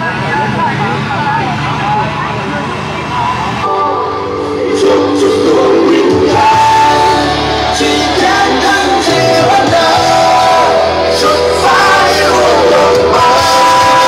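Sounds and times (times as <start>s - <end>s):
song through horn loudspeakers: 3.6s - 14.0s.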